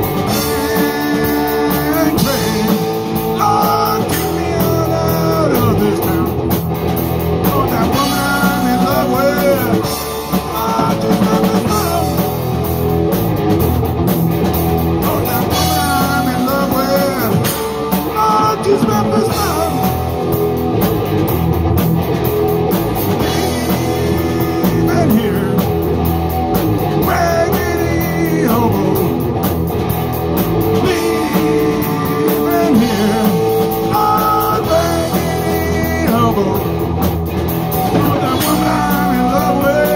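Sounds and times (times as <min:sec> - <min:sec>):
distorted electric guitar: 0:00.0 - 0:39.9
drum kit: 0:00.0 - 0:39.9
electric bass: 0:00.0 - 0:39.9.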